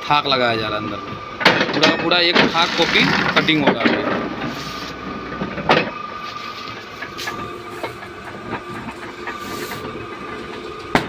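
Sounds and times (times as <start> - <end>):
guillotine machine humming: 0.0 - 11.0.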